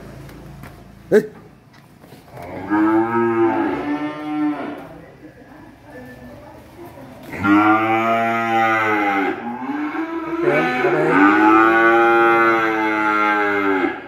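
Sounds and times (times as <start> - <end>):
calf mooing: 2.3 - 4.9, 7.3 - 14.0.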